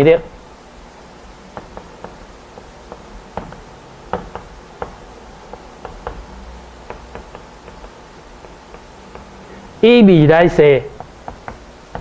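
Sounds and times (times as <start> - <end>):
chalk tapping and scraping on blackboard: 1.5 - 9.8, 10.8 - 12.0.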